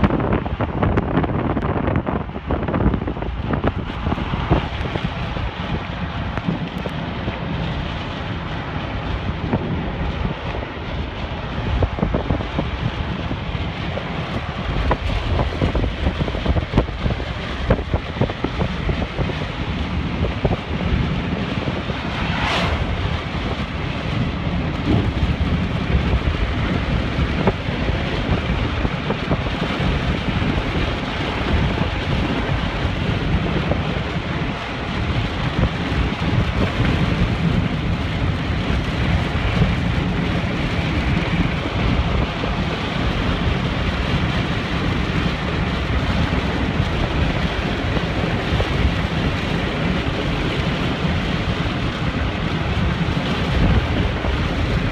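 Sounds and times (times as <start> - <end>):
gusty wind buffeting: 0.0 - 54.9
heavy rain beating on a car: 0.0 - 54.9
low rumble: 0.0 - 54.9
brief whoosh: 21.7 - 23.7.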